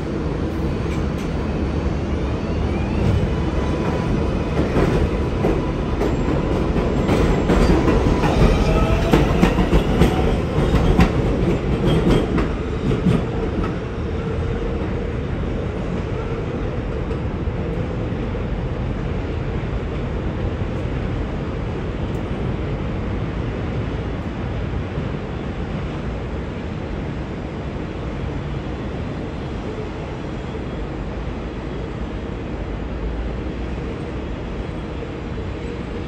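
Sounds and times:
subway train motor whine: 0.0 - 25.7.

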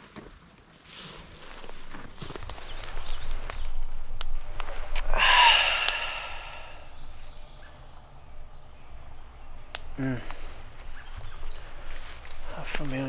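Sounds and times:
man breathing loudly: 5.0 - 7.6.

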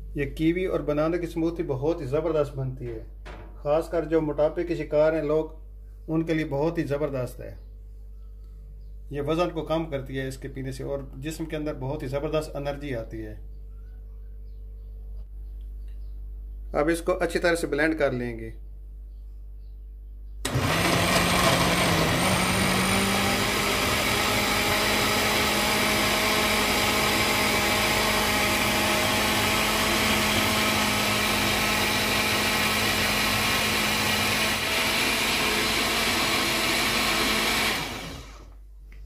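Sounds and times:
blender motor running: 20.5 - 38.6.

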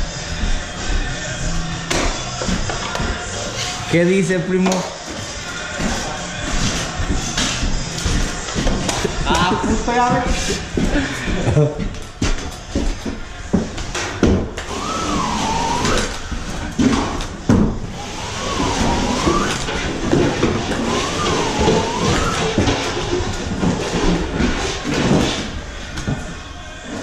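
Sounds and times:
wavering squeal: 14.7 - 16.7, 17.9 - 24.2.

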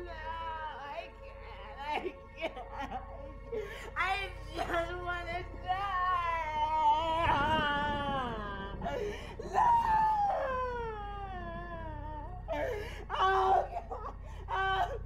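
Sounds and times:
woman wailing and crying: 0.1 - 15.0.

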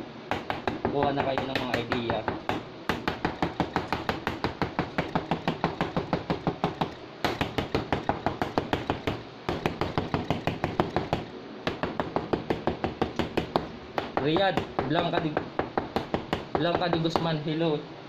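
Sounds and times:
fork tapping through dough on metal: 0.3 - 17.4.

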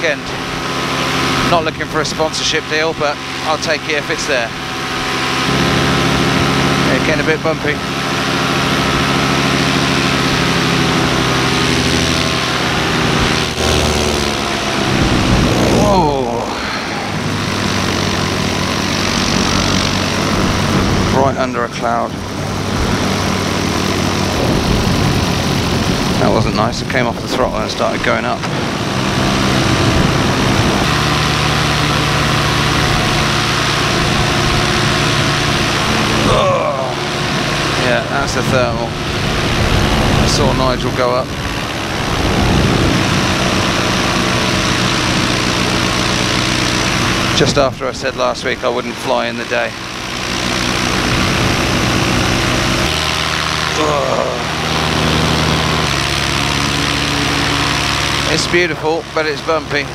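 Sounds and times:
paramotor engine and propeller: 0.0 - 59.9
wind rushing: 41.2 - 44.3.

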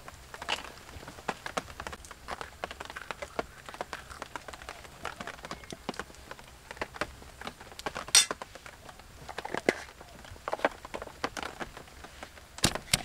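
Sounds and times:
cookware taps and clicks: 8.2 - 8.4.

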